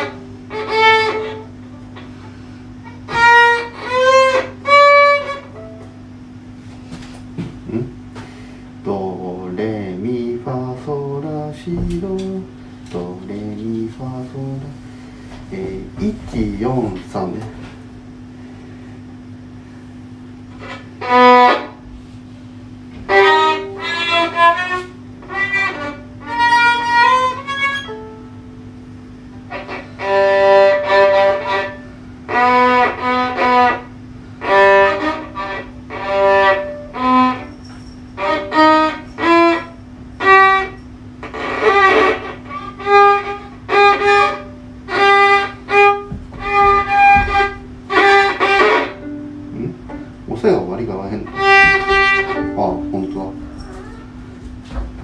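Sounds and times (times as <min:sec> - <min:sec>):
bowed solo violin: 0:00.0 - 0:02.1, 0:02.8 - 0:05.8, 0:20.5 - 0:21.8, 0:23.0 - 0:28.2, 0:29.3 - 0:37.5, 0:38.2 - 0:54.1.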